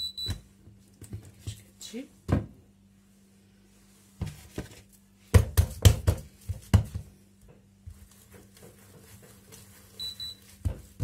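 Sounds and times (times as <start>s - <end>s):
low steady hum: 0.0s - 11.0s
hands slapping dough on stone: 4.2s - 7.1s, 10.5s - 11.0s.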